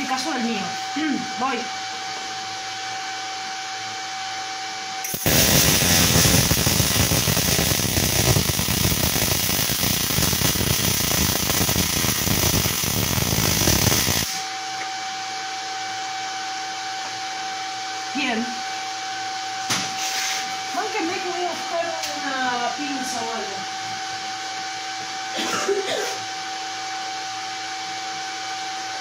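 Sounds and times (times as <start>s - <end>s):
machine hum: 0.0s - 19.3s
welding arc crackling: 5.0s - 14.4s.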